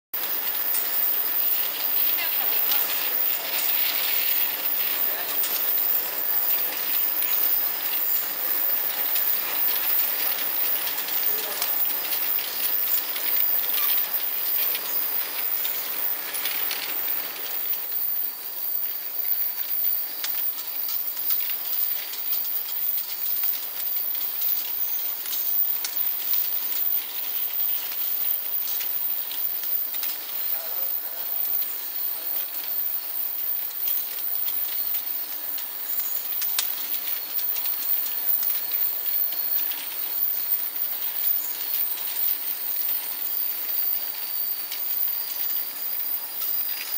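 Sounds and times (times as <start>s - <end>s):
water spray hiss: 0.2s - 18.4s.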